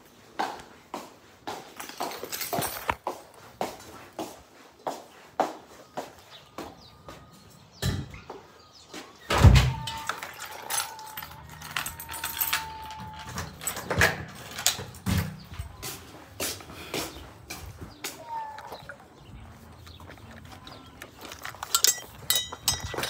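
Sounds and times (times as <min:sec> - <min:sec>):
door thudding shut: 0:09.3 - 0:10.0.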